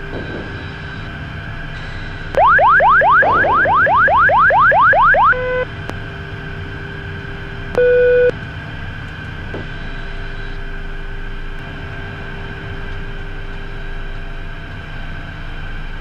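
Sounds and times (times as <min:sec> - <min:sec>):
rising electronic warning sweeps: 0:01.8 - 0:05.7
short steady warning tones: 0:01.8 - 0:05.7, 0:07.7 - 0:08.3
faint steady hum: 0:02.1 - 0:08.4.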